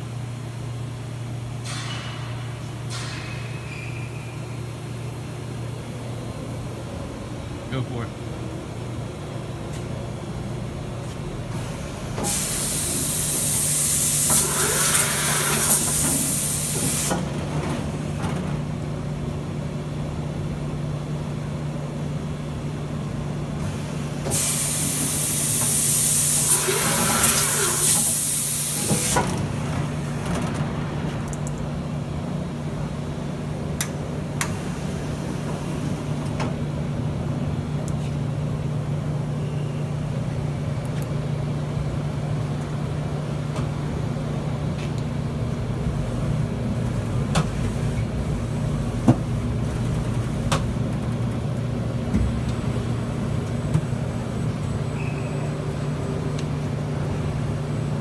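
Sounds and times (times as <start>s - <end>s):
loud air hiss: 12.2s - 17.2s, 24.3s - 29.2s.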